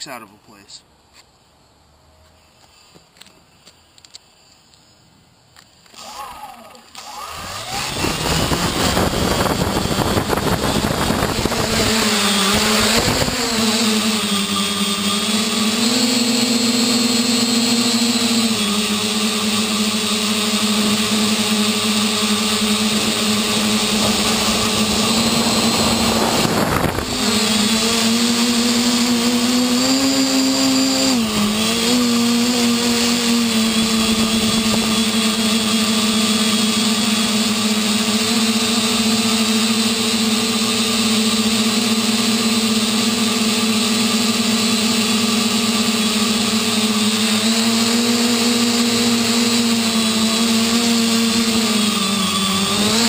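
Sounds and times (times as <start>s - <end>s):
drone propellers humming: 5.7s - 53.0s
rush of noise: 21.3s - 29.3s.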